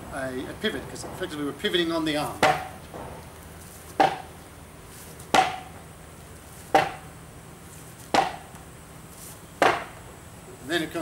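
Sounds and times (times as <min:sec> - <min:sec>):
sword striking padded post: 0:02.4 - 0:02.8, 0:04.0 - 0:04.3, 0:05.3 - 0:05.7, 0:06.7 - 0:07.1, 0:08.1 - 0:08.5, 0:09.6 - 0:09.9.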